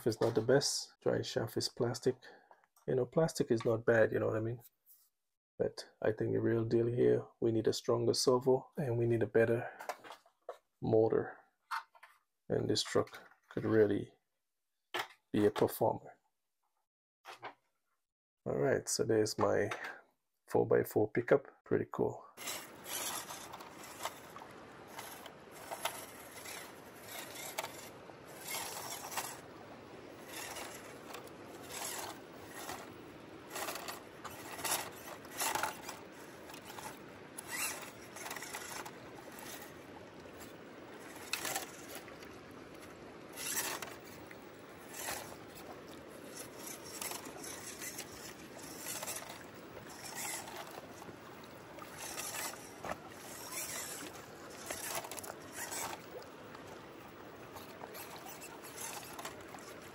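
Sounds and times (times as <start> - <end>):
toy car motor whirring: 22.4 - 42.2, 43.3 - 51.1, 51.8 - 56.6, 57.5 - 59.9.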